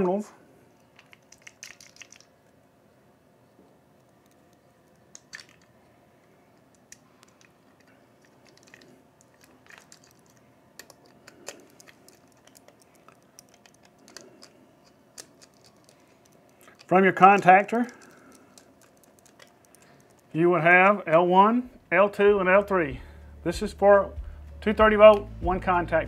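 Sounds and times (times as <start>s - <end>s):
small metal clicks and taps: 6.6s - 20.3s.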